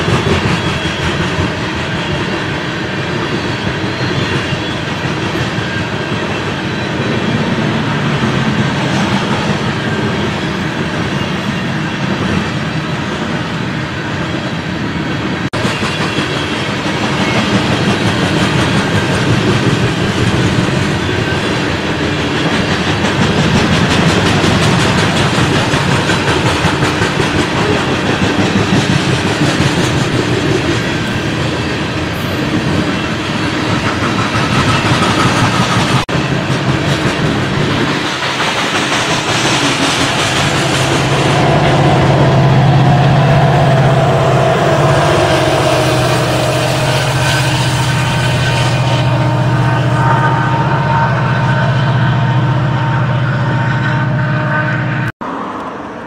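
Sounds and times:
clickety-clack over rail joints: 0.0 - 6.6, 15.6 - 41.9
train wheels rumbling on rails: 0.0 - 56.0.

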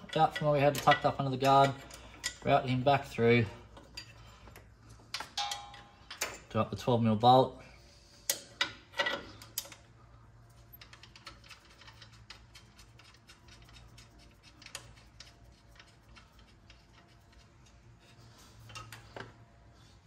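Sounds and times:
metallic clicks of bolt handling: 3.7 - 6.5, 8.2 - 9.9.

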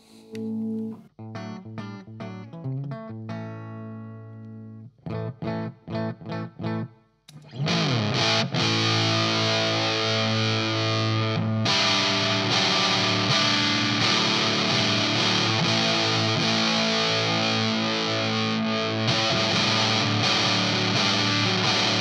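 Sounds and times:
electric guitar chords: 0.2 - 22.0
fuzzed distorted guitar chords: 7.4 - 22.0.

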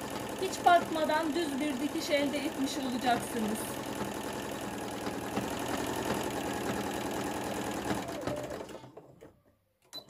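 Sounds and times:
sewing machine running: 0.0 - 9.2.

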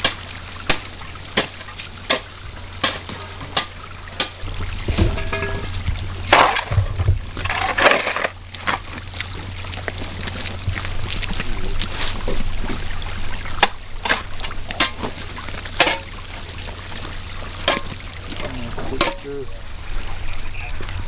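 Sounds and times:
low steady hum: 0.0 - 21.0
running water: 0.0 - 21.0
shovel scraping wet dirt: 6.3 - 8.9.

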